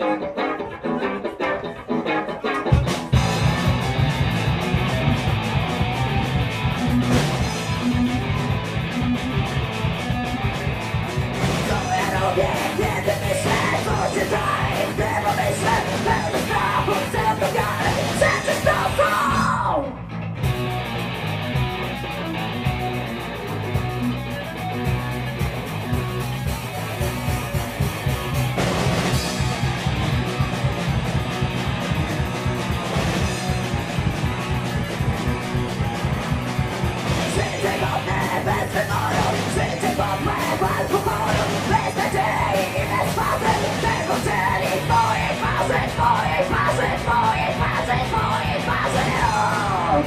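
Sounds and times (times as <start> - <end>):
guitar playing alone: 0.0 - 18.0, 20.0 - 50.0
punk band playing live: 0.0 - 50.0
woman singing: 37.4 - 50.0.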